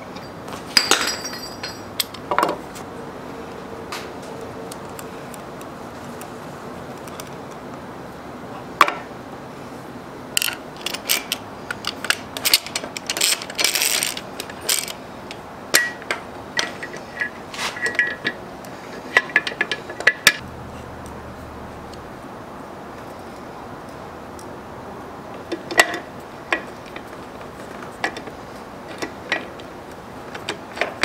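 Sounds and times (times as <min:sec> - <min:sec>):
metal lathe parts clinking: 0:00.1 - 0:02.6, 0:10.4 - 0:15.0.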